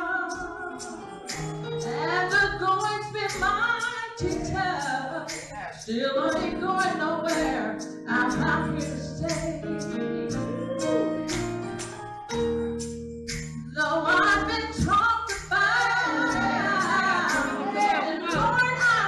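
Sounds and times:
woman singing gospel: 0.0 - 11.5, 13.7 - 19.0
percussion beat: 0.0 - 19.0.

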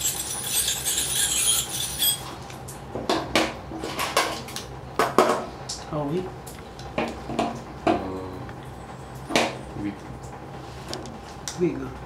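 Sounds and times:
electric hair clippers shearing fur: 0.0 - 2.3.

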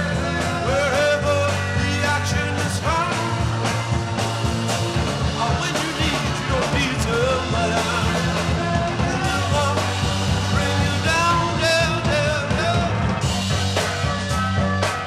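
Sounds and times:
bass line: 0.0 - 15.0
drums: 0.0 - 15.0.

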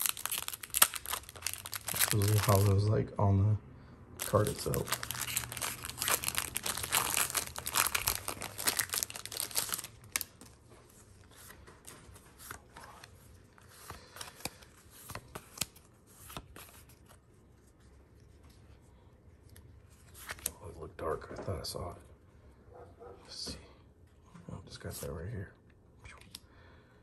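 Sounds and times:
wrapper tearing and crinkling: 0.0 - 2.8, 4.2 - 10.6.

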